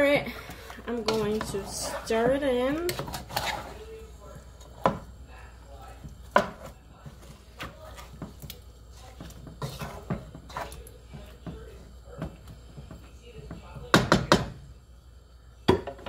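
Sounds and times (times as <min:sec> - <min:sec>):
wooden spoon stirring meat in pot: 0:00.0 - 0:14.7
spoon knocking against metal pot: 0:12.2 - 0:14.6.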